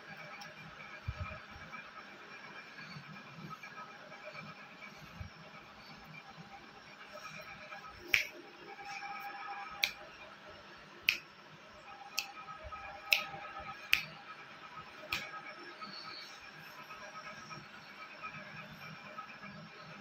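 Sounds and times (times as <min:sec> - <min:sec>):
fingers snapping: 0:08.0 - 0:08.4, 0:09.8 - 0:10.1, 0:11.1 - 0:11.3, 0:12.1 - 0:12.4, 0:13.0 - 0:14.2, 0:15.0 - 0:15.4.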